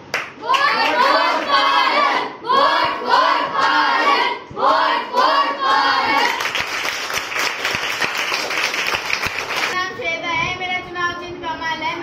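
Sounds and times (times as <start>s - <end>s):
children chanting in unison: 0.4s - 6.4s.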